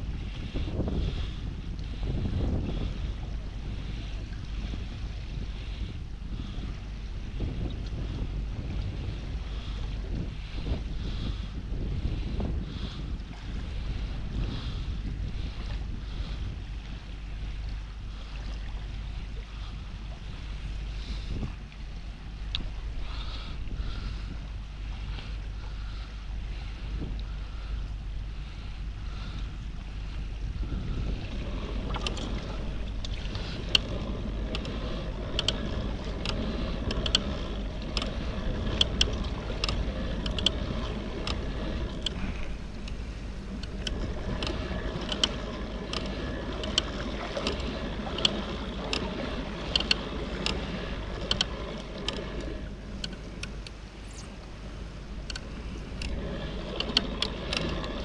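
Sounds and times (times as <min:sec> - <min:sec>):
wind rumble on microphone: 0:00.0 - 0:58.0
water wash: 0:30.1 - 0:58.0.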